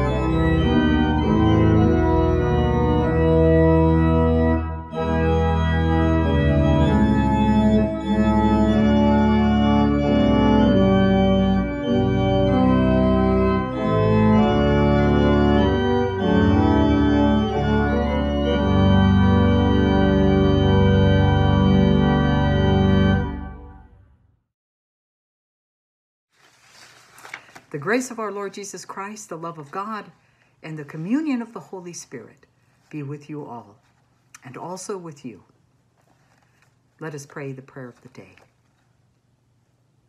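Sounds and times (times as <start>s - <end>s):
church organ chords: 0.0s - 24.2s.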